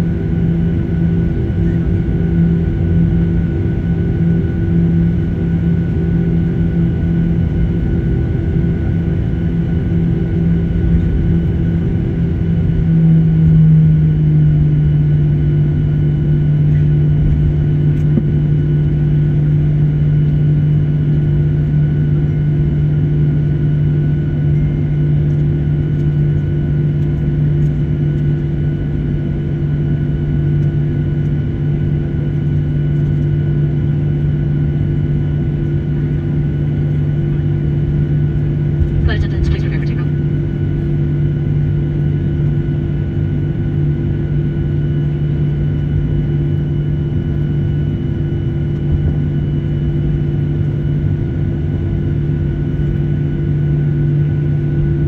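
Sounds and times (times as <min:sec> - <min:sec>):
aircraft engine drone: 0:00.0 - 0:55.0.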